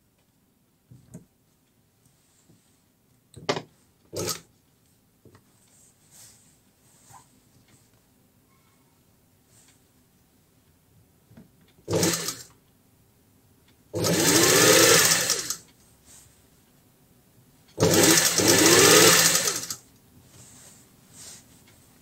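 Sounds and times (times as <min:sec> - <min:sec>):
sewing machine stitching: 0:04.2 - 0:04.5, 0:11.8 - 0:12.5, 0:14.0 - 0:15.6, 0:17.8 - 0:19.8.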